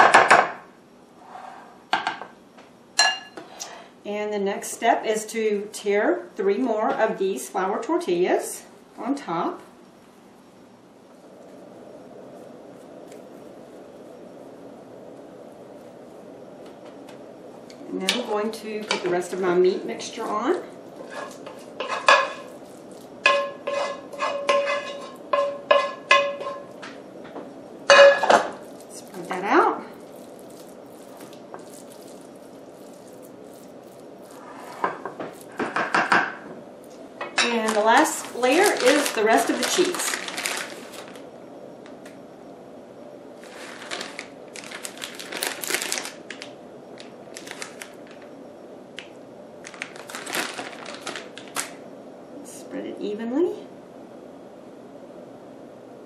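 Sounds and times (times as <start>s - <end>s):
plastic bag crinkling: 20.1s - 24.0s, 28.2s - 35.9s, 36.8s - 42.1s, 43.4s - 48.4s, 49.0s - 51.8s
wooden spoon knocking on skillet: 23.2s - 27.0s, 34.9s - 36.4s.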